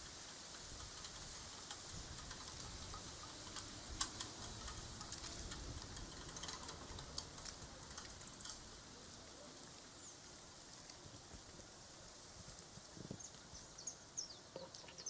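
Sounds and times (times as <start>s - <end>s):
low steady hiss: 0.0s - 15.0s
light ticks and clicks: 0.2s - 11.7s.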